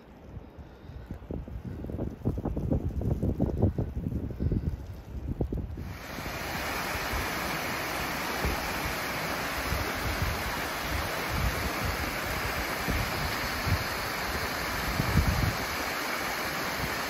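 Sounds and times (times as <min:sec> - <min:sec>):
wind buffeting microphone: 0:00.0 - 0:17.0
waterfall splashing over rocks: 0:05.8 - 0:17.0.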